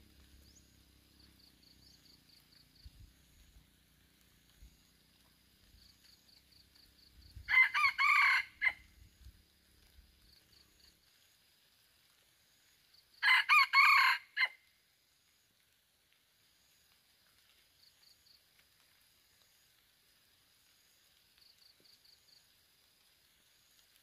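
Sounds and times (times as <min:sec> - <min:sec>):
rooster crowing: 0:07.4 - 0:08.9, 0:13.2 - 0:14.6.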